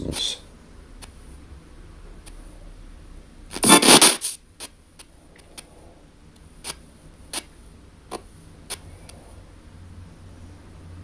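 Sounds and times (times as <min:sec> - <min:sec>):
choppy radio blips: 0:03.5 - 0:04.7
radio static rush: 0:03.5 - 0:04.8.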